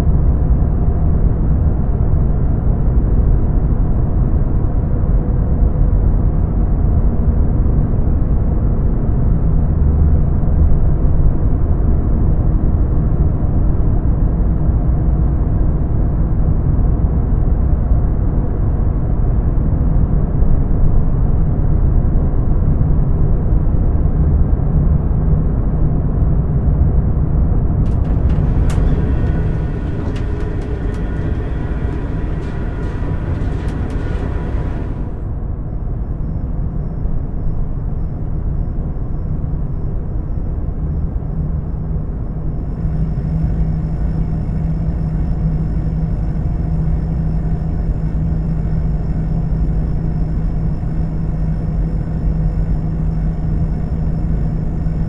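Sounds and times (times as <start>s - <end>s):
low rumbling background noise: 27.8s - 55.0s
thin high hum: 27.9s - 55.0s.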